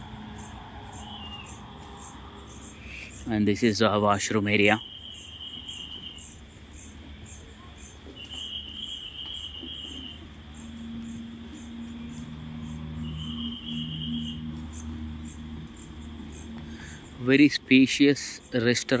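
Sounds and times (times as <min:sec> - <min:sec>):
steady low drone: 0:00.0 - 0:04.0, 0:10.1 - 0:17.9
insects chirping: 0:00.0 - 0:19.0
low insect trill: 0:00.0 - 0:19.0
low steady hum: 0:00.0 - 0:19.0.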